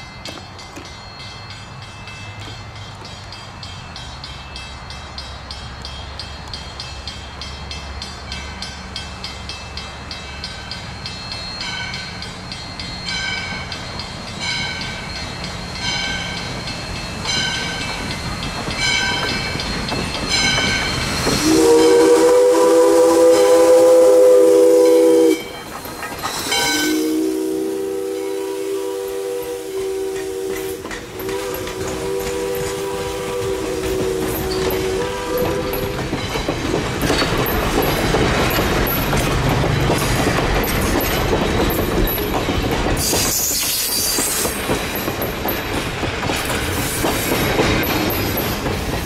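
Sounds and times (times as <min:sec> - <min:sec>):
locomotive bell ringing: 0:00.0 - 0:45.9
steam locomotive rumble: 0:00.0 - 0:49.0
chime whistle blasts: 0:26.3 - 0:36.0.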